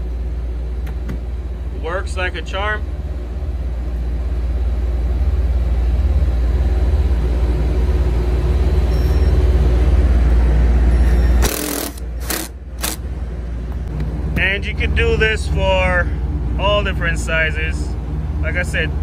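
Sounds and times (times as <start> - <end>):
impact driver hammering: 11.4 - 13.0.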